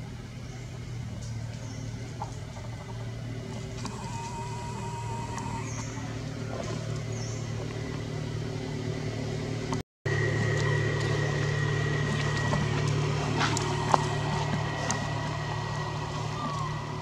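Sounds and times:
low mechanical hum: 0:00.0 - 0:17.0
thin high whine: 0:03.5 - 0:07.7, 0:08.5 - 0:17.0.

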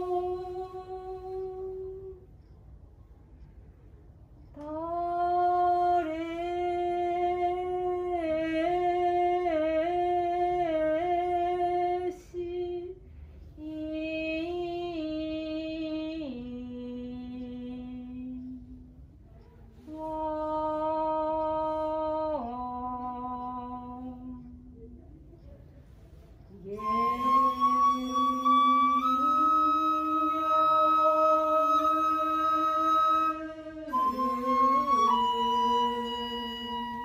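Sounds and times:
person singing long drawn-out notes: 0:26.6 - 0:37.0.

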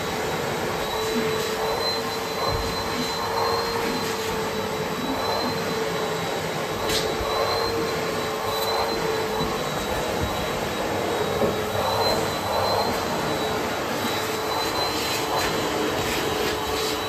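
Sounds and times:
vacuum cleaner running: 0:00.0 - 0:17.0.

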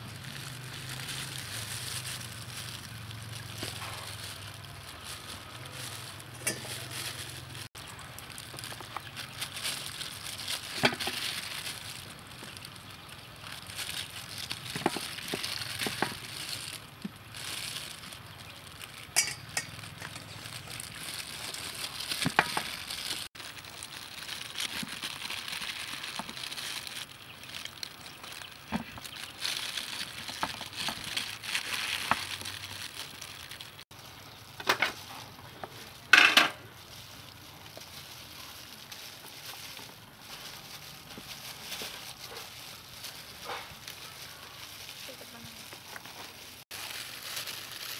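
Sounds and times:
sharp metal clinks: 0:19.2 - 0:20.2.

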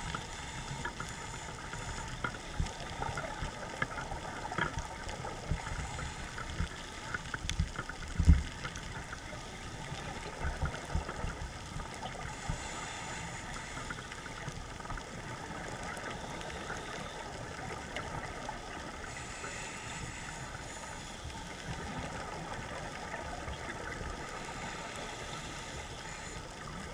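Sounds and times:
underwater hiss: 0:00.0 - 0:04.5, 0:05.2 - 0:07.4, 0:11.8 - 0:26.9.

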